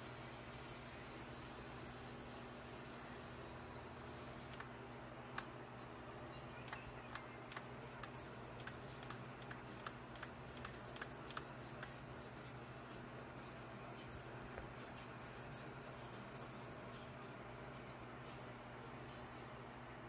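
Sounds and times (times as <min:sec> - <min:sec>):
low steady hum: 0:00.0 - 0:20.0
light clicks and ticks: 0:06.7 - 0:12.0.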